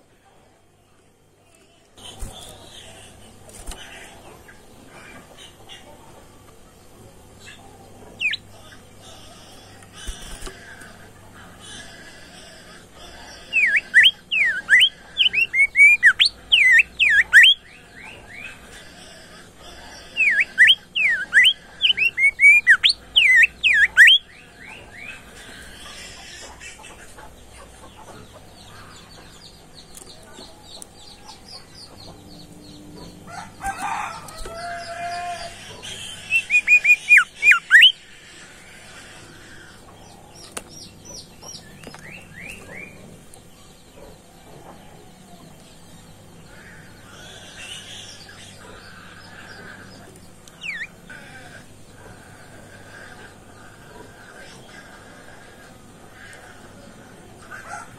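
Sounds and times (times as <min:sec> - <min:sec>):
songbird whistling song: 0:13.6 - 0:18.5, 0:20.2 - 0:24.9, 0:35.9 - 0:38.0, 0:50.5 - 0:51.0.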